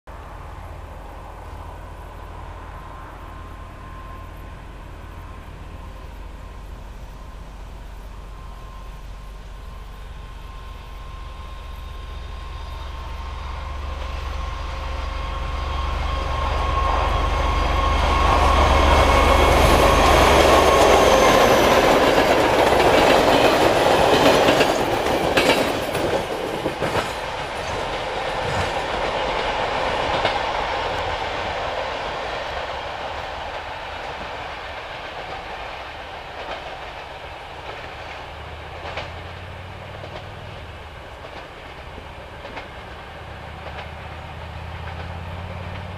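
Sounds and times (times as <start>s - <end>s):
steady whine: 0.1s - 45.0s
diesel locomotive rumble: 0.1s - 45.9s
wheels clicking over rail joints: 19.4s - 31.7s, 32.3s - 45.9s.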